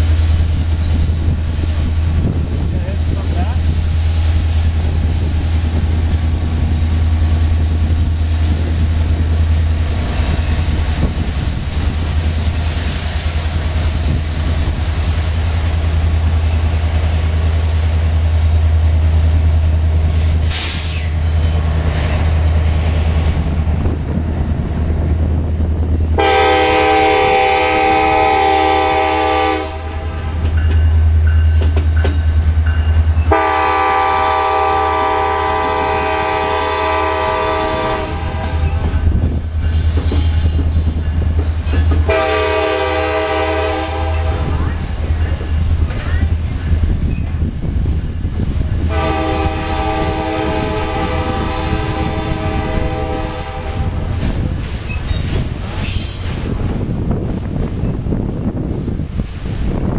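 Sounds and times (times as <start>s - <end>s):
diesel locomotives rumbling past: 0.0s - 59.9s
locomotive air horn blasts: 26.2s - 30.4s, 33.3s - 38.8s, 42.0s - 44.5s, 48.9s - 54.1s.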